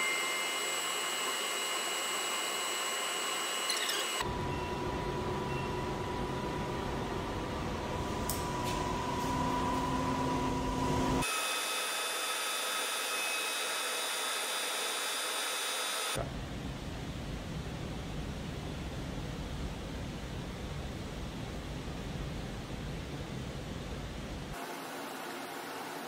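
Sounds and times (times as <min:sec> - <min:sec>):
milling machine running: 0:00.0 - 0:16.2.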